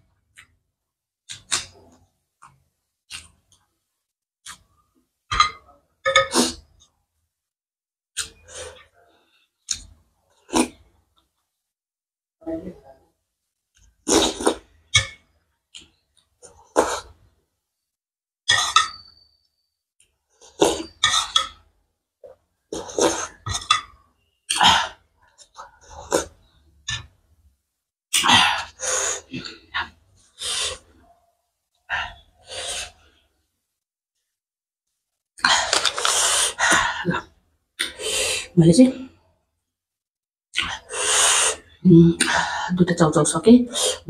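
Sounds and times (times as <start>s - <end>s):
slurping soup from spoon: 35.4s - 36.6s.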